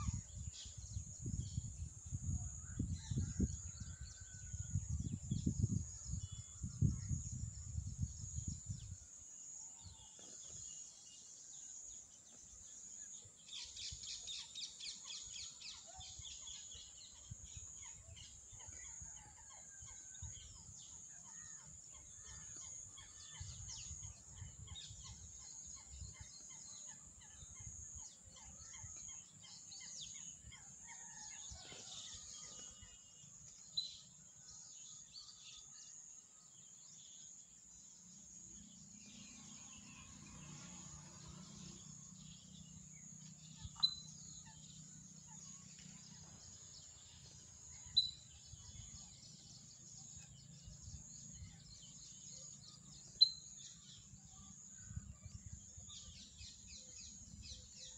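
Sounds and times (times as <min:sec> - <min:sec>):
low wind rumble: 0:00.0 - 0:09.2
birds chirping: 0:36.5 - 0:57.9.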